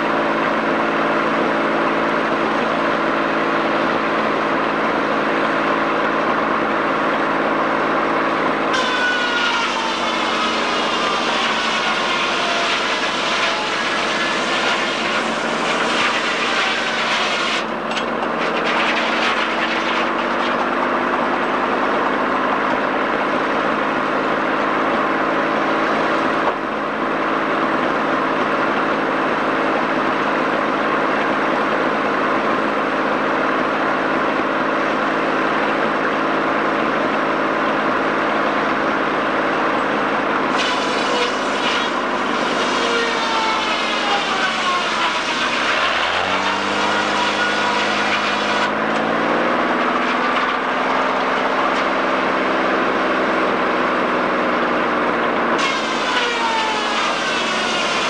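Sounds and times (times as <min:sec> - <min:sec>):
sawmill machinery droning: 0:00.0 - 0:58.0
saw cutting into log: 0:00.1 - 0:22.2, 0:40.1 - 0:53.6, 0:55.4 - 0:58.0.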